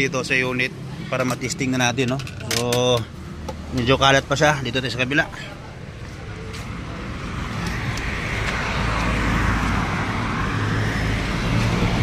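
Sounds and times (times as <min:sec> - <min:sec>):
vehicle passing: 0:03.1 - 0:12.0.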